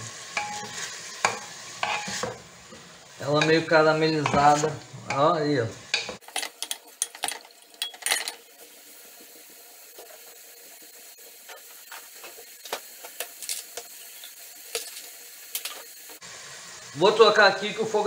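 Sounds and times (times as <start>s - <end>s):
onions sizzling in fat: 0.0s - 18.0s
spoon scraping and knocking pot: 0.4s - 2.4s, 3.4s - 5.3s.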